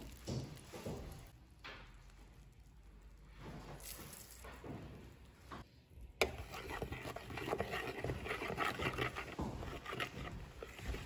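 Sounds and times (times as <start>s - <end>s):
spoon scraping and clinking bowl: 6.2s - 11.0s.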